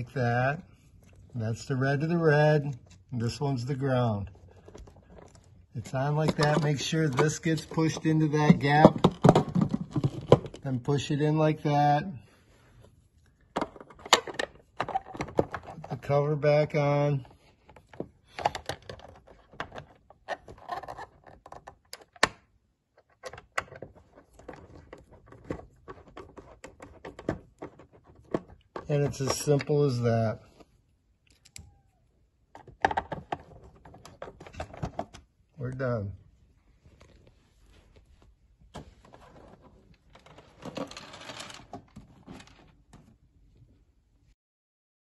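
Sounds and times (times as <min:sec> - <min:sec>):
plastic cover handled against housing: 0:04.3 - 0:10.6, 0:23.0 - 0:30.7, 0:36.8 - 0:43.2
plastic pet feeder knocks and rattles: 0:08.0 - 0:10.6.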